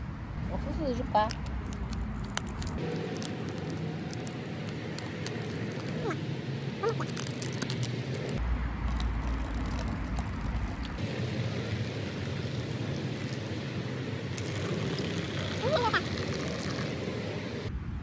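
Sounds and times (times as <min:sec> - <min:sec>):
hot water pouring into cups: 0:08.9 - 0:17.3.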